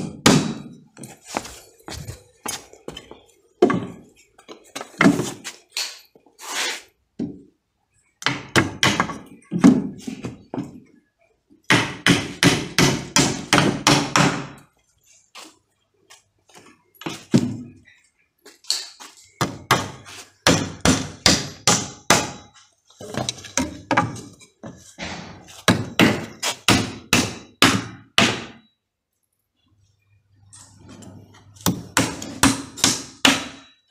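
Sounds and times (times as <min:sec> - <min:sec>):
hammer nailing timber: 0:00.0 - 0:00.7, 0:08.2 - 0:09.3, 0:11.7 - 0:14.6, 0:19.4 - 0:22.6, 0:25.0 - 0:28.6, 0:31.6 - 0:33.8.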